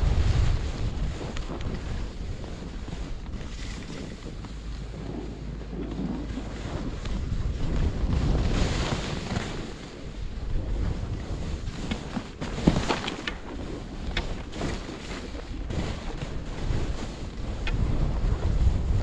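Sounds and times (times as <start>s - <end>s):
skis sliding on packed snow: 0.0s - 19.0s
wind buffeting microphone: 0.0s - 19.0s.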